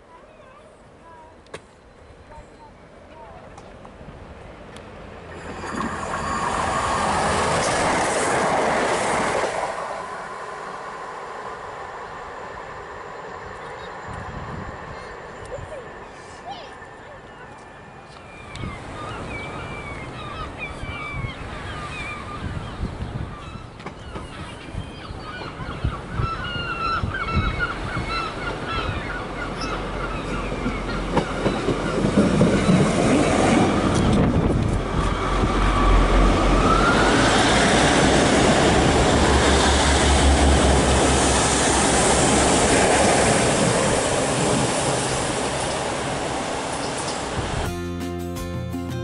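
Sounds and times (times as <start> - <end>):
diesel train passing: 0.8 - 22.4, 27.6 - 49.0
train wheels on rails: 3.0 - 19.0, 29.4 - 47.7
birds calling: 13.5 - 33.2.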